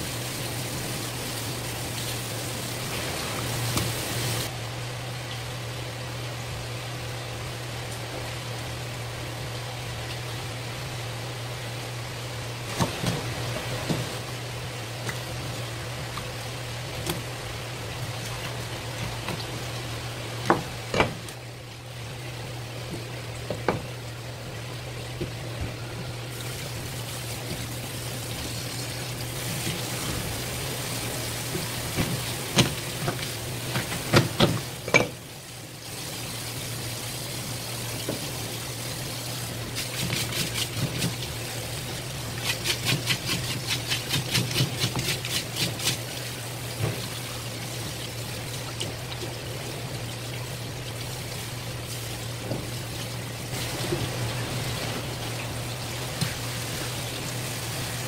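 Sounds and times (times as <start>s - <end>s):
tap water running: 0.0s - 4.5s, 12.4s - 58.0s
steady low hum: 0.0s - 35.8s.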